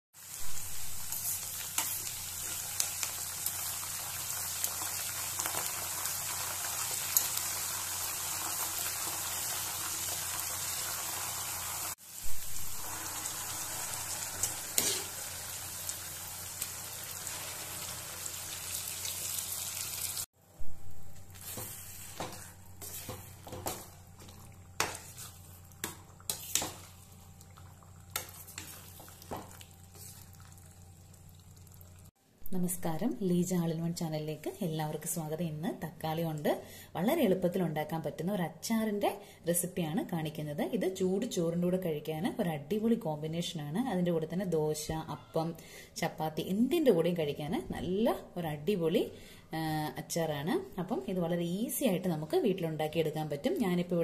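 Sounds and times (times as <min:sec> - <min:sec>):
hot oil sizzling in pan: 0:00.2 - 0:20.3
steel spoon scraping pan: 0:14.3 - 0:15.2.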